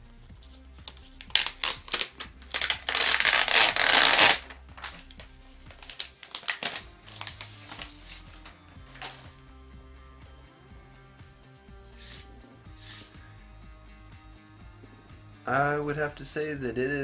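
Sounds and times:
plastic film peeling: 0.8s - 9.3s
plastic film crinkling: 0.9s - 9.3s.

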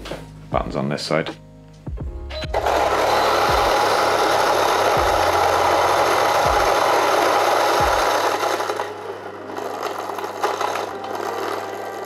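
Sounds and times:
motor hum: 2.0s - 12.0s
coffee grinder grinding beans: 2.4s - 12.0s
crackles of beans: 2.8s - 12.0s.

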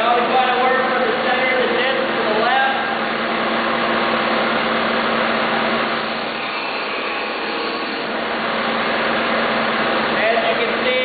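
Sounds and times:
sander motor whirring: 5.8s - 9.1s.

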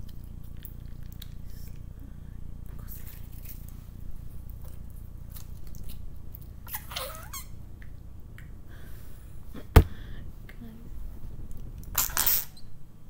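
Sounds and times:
sharp thump: 9.7s - 10.0s.

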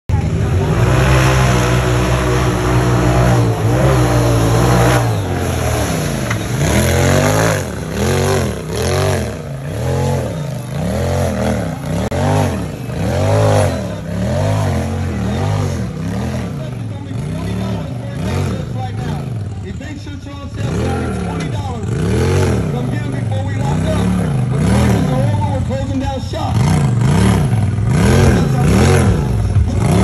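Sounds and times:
vehicle engine revving: 0.1s - 30.0s.

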